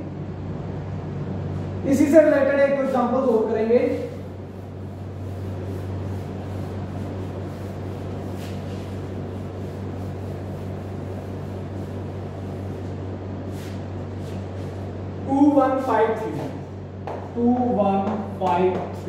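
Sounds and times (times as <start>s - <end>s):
constant low hum: 0.0s - 19.0s
duster rubbing on blackboard: 2.7s - 14.9s.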